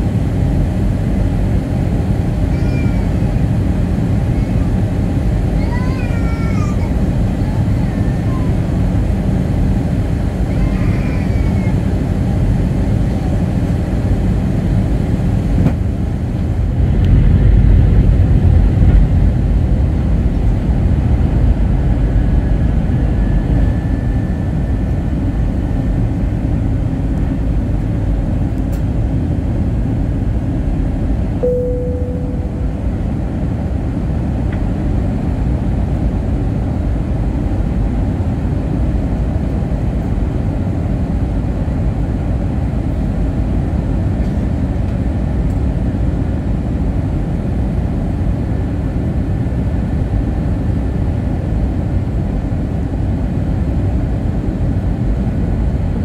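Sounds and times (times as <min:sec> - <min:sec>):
airliner engines rumbling: 0:00.0 - 0:56.0
short single tone: 0:31.4 - 0:33.1.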